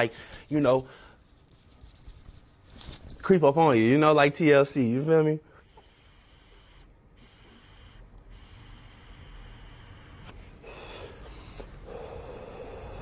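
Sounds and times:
airy hiss of inhaling: 0:05.7 - 0:13.0
breathy exhale: 0:10.6 - 0:13.0.

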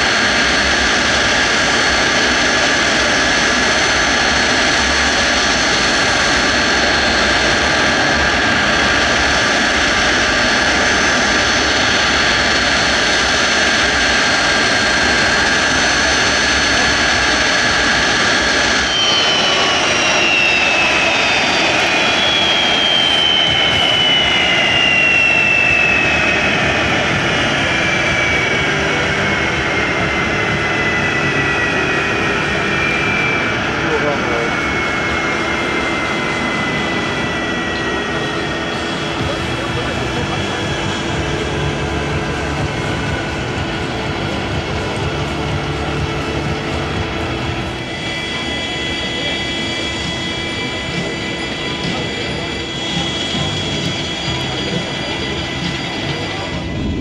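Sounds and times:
jet engine roar: 0:00.0 - 0:57.0
whine sliding down in pitch: 0:18.1 - 0:29.8.

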